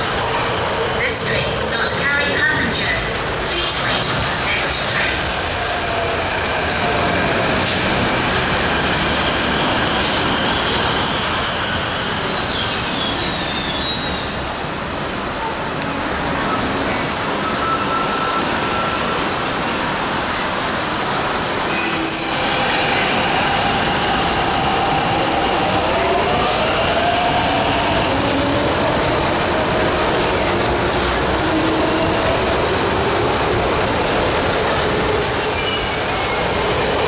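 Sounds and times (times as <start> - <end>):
train wheels on rails: 0.0 - 37.0
high wheel squeals: 10.5 - 14.5, 15.4 - 19.3.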